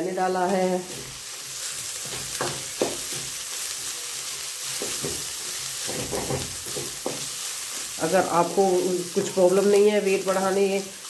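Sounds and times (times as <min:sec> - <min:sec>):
vegetables sizzling in oil: 0:00.0 - 0:11.0
spatula scraping and knocking pan: 0:00.9 - 0:03.4, 0:04.6 - 0:07.9.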